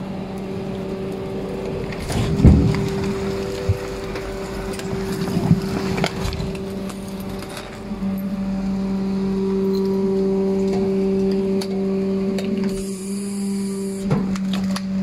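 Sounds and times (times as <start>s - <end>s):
hydraulic compactor hum: 0.0s - 15.0s
metal knocks and clanks: 2.0s - 7.8s.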